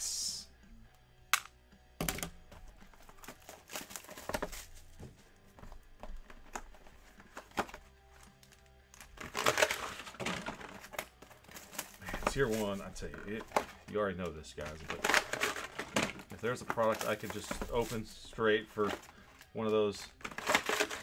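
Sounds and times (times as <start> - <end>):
boxes shuffled on a table: 2.5 - 8.6, 9.2 - 14.0, 14.6 - 19.2
plastic wrap crinkling and tearing: 3.2 - 4.9, 8.4 - 13.5.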